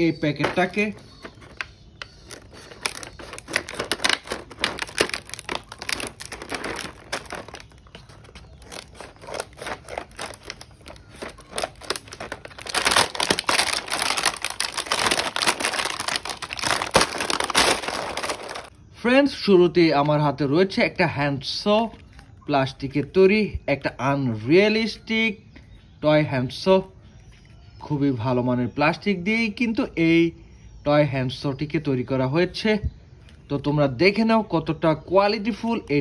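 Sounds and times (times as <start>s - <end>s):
plastic film crinkling: 0.0s - 18.8s
scissors cutting plastic and card: 0.4s - 18.7s.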